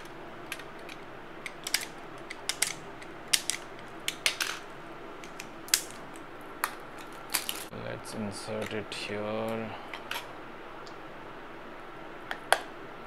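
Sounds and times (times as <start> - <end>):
sharp clicks and small clatters: 0.0 - 4.6.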